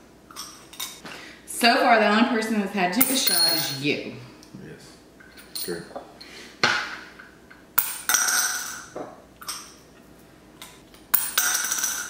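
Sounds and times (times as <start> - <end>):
coin tapping counter: 3.0 - 3.8, 7.8 - 8.8, 11.1 - 12.0
coins clinking into glass: 3.0 - 3.8, 5.4 - 5.8, 7.8 - 8.9, 11.1 - 12.0.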